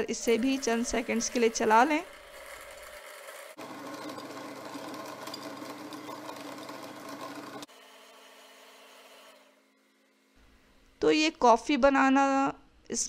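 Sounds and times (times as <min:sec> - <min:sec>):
blender running: 0:00.0 - 0:09.6.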